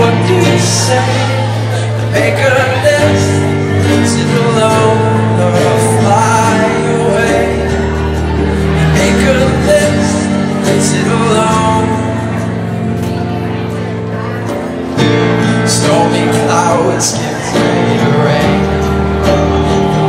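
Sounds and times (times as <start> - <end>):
acoustic guitar: 0.0 - 20.0
keyboard: 0.0 - 20.0
mandolin: 0.0 - 20.0
person singing: 0.0 - 20.0.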